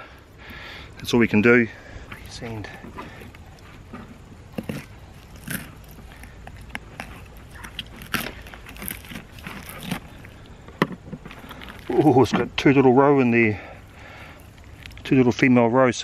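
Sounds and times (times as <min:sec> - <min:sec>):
knife cutting through fish bone: 0:04.5 - 0:10.3.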